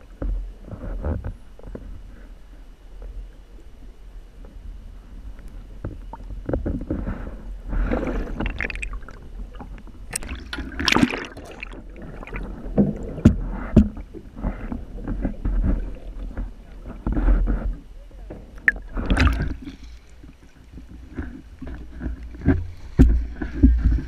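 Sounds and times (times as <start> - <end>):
sea water sloshing and splashing: 5.0 - 24.0.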